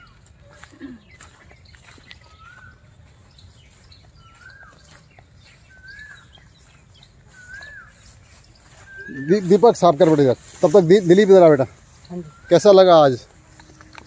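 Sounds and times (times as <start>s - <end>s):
bird whistling call: 2.2s - 2.9s, 4.2s - 10.6s, 11.9s - 14.0s.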